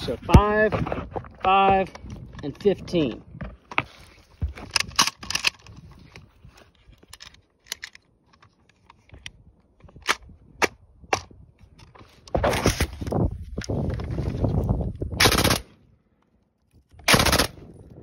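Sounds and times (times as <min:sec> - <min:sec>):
machine-gun fire: 0:15.2 - 0:15.6, 0:17.1 - 0:17.6.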